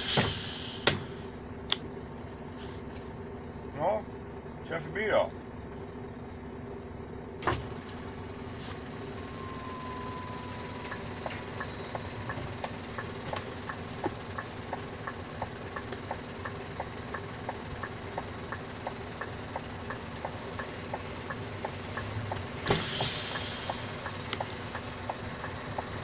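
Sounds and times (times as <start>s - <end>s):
diesel truck engine idling: 0.0s - 26.0s
turn signal ticking: 9.0s - 26.0s.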